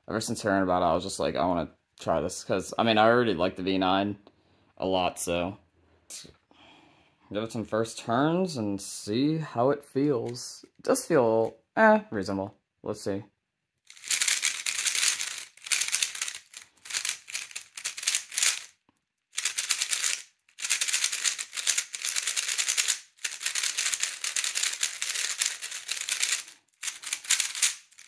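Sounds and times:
puzzle cube clicking: 13.9 - 18.7, 19.4 - 28.0.

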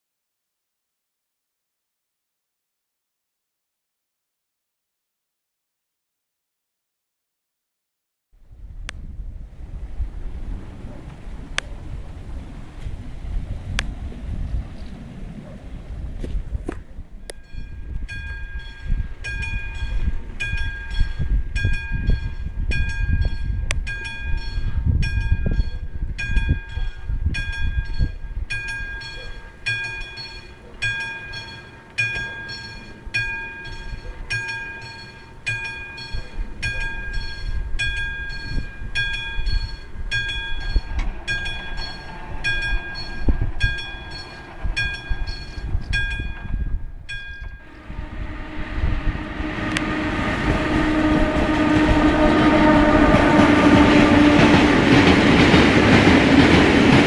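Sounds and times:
level crossing warning bell: 17.2 - 48.2
low rumble: 39.9 - 57.0.

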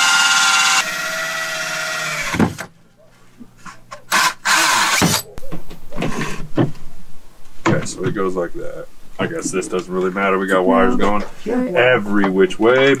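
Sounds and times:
cordless drill whining: 0.0 - 2.7, 4.1 - 5.2.

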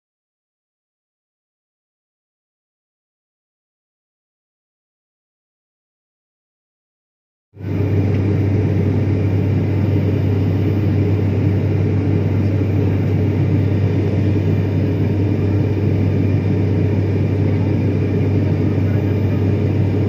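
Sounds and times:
turboprop engine drone in cabin: 7.6 - 20.0.

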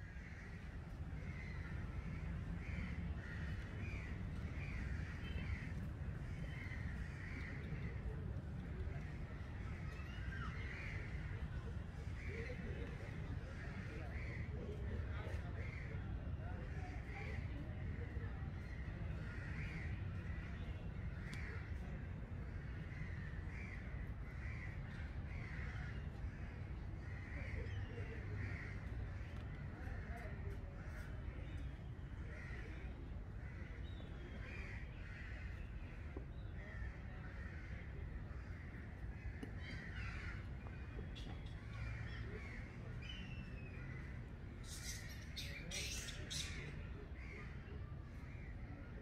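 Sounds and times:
short bird calls: 44.6 - 46.8.

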